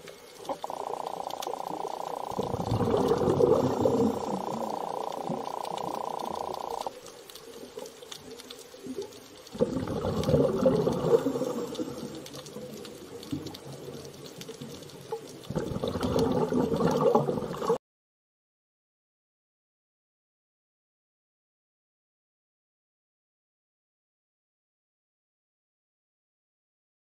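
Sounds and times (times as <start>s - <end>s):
underwater bubbling and gurgling: 0.0s - 17.8s.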